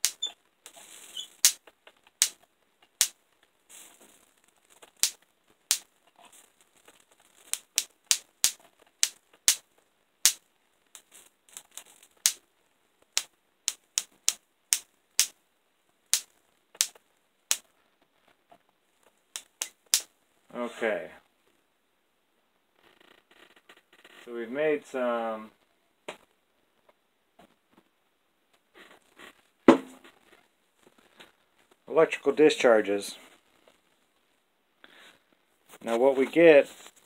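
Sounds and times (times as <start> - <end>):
electric sparks cracking: 0.0 - 1.6, 4.8 - 5.9, 7.5 - 9.6, 11.0 - 12.4, 16.1 - 17.6, 19.4 - 20.1.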